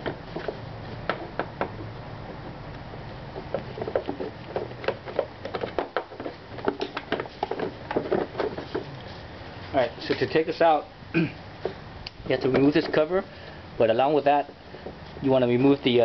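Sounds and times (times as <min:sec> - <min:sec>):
plastic panel handling: 0:03.4 - 0:08.9.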